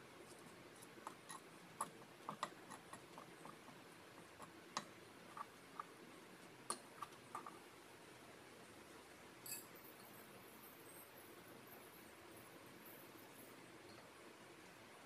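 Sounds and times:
spoon scraping a clay dish: 0:00.3 - 0:04.5, 0:05.3 - 0:05.9.

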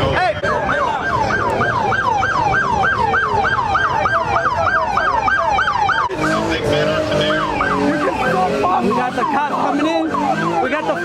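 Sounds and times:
police siren yelp: 0:00.1 - 0:11.0.

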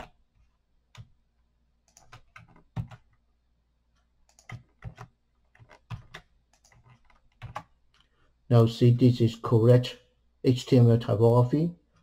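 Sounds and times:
computer keyboard taps: 0:04.3 - 0:07.7.

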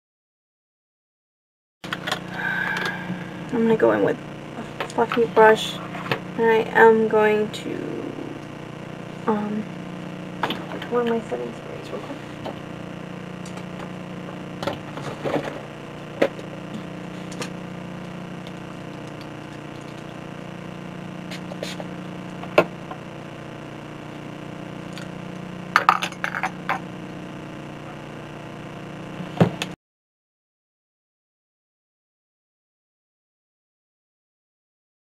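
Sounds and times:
steady low hum: 0:01.8 - 0:29.8.

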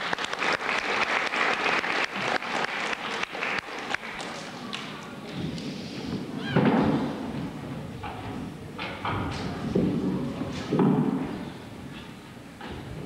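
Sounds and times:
children applauding: 0:00.0 - 0:04.9.

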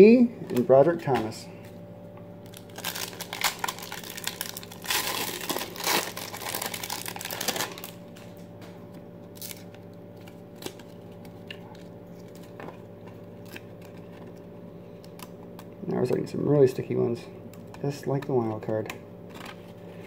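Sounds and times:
wrapper tearing and crinkling: 0:02.4 - 0:08.3, 0:09.3 - 0:12.6.

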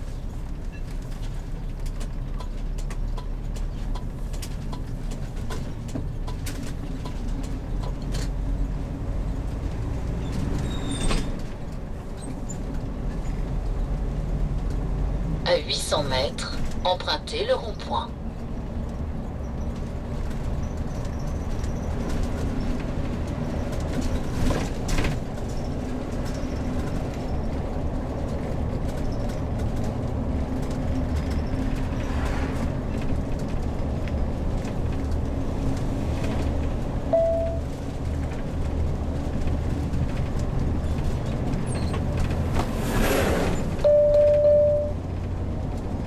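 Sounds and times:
motorhome engine and road drone: 0:00.0 - 0:46.0
short beep: 0:37.1 - 0:37.6, 0:43.8 - 0:45.0.

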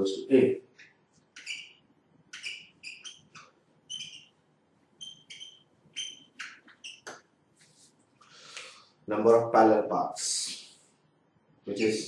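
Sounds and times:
marker squeaking on whiteboard: 0:00.7 - 0:08.0, 0:11.7 - 0:12.0.

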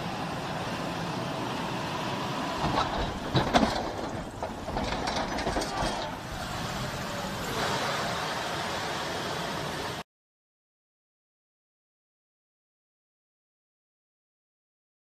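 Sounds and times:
metal clanks and knocks: 0:02.6 - 0:06.3.

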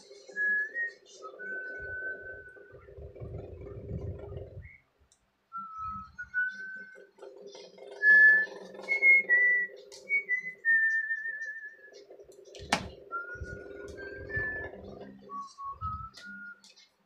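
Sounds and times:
person whistling slow tune: 0:00.3 - 0:02.8, 0:05.5 - 0:07.0, 0:08.0 - 0:12.0, 0:13.1 - 0:16.7.

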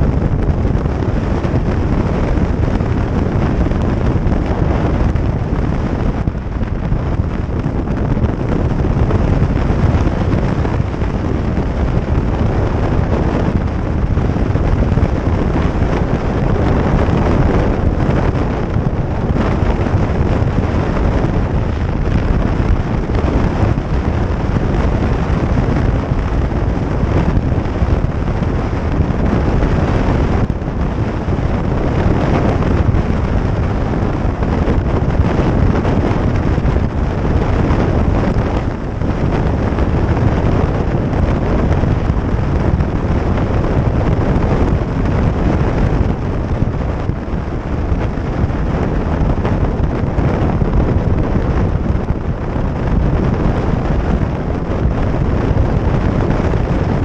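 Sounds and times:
motorcycle and road noise: 0:00.0 - 0:57.0
wind noise on microphone: 0:00.0 - 0:57.0.

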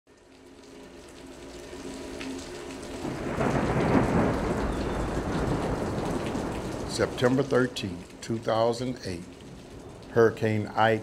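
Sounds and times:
rain: 0:00.1 - 0:11.0
thunder rumbling: 0:03.0 - 0:10.2.

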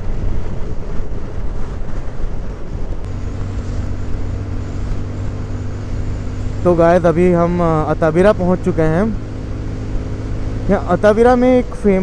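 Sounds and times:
road noise rushing: 0:00.0 - 0:12.0
motorcycle engine running: 0:02.7 - 0:12.0.

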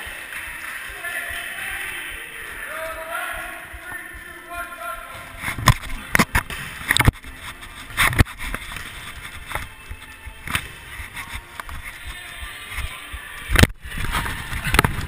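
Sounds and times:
steady rustle: 0:05.0 - 0:12.9.

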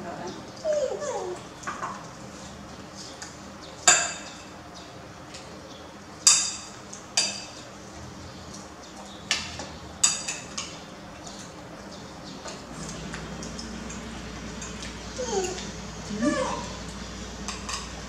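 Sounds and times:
cutlery clinking on plates: 0:06.2 - 0:07.6, 0:09.3 - 0:11.6.

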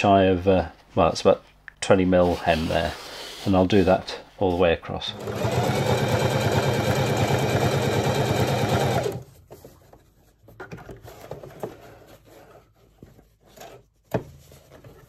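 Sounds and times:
sewing machine stitching: 0:05.1 - 0:09.2.

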